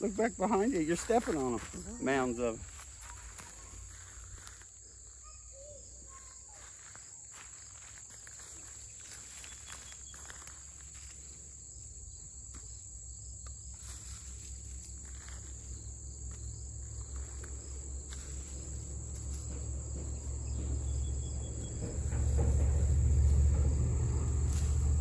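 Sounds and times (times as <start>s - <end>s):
hands rustling through mulch: 0.0s - 5.2s, 6.1s - 11.4s, 13.7s - 20.2s, 22.1s - 25.0s
high insect chorus: 0.0s - 25.0s.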